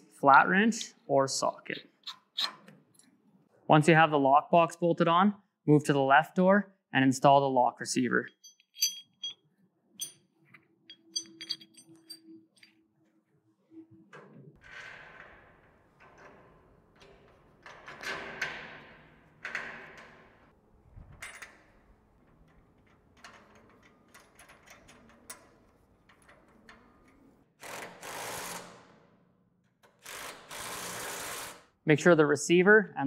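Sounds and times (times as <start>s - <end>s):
metal bolts clinking: 8.3s - 9.4s, 10.0s - 10.2s, 10.9s - 12.7s.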